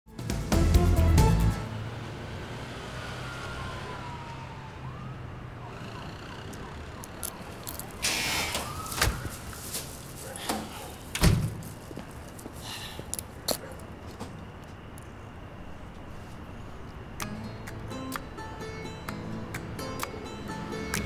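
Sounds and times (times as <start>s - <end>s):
night street ambience: 0.1s - 21.0s
faint distant siren wailing: 1.6s - 12.5s.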